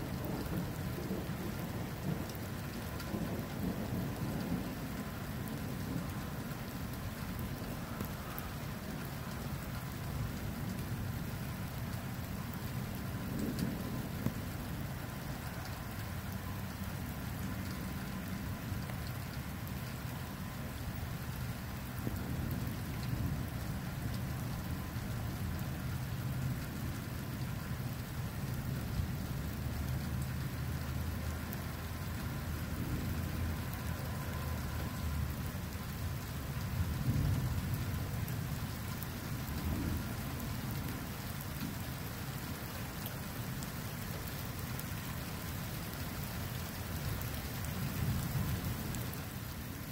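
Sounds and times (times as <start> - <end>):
steady rain falling: 0.0 - 49.9
rolling thunder: 13.2 - 14.6.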